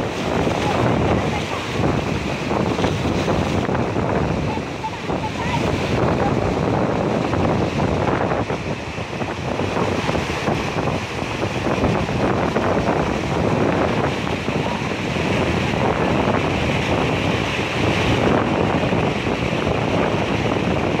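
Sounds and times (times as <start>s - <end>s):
floodwater rushing: 0.0s - 21.0s
wind buffeting microphone: 0.0s - 21.0s.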